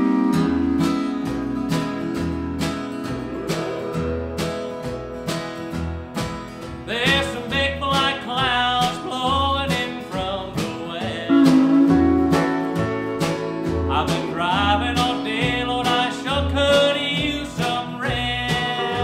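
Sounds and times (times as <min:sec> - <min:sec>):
acoustic guitar strumming: 0:00.0 - 0:19.0
pedal steel guitar: 0:00.0 - 0:19.0
upright bass notes: 0:00.0 - 0:19.0
steady beat: 0:00.4 - 0:06.4, 0:11.3 - 0:15.2
person singing: 0:06.9 - 0:12.5, 0:13.9 - 0:19.0.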